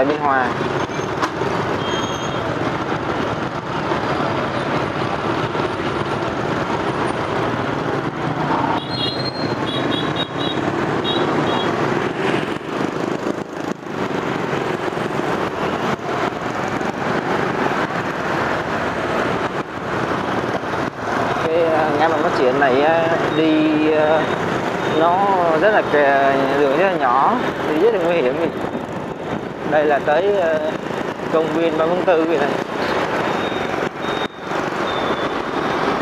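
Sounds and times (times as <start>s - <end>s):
highway traffic noise: 0.0s - 36.0s
short high beeps: 33.3s - 35.4s.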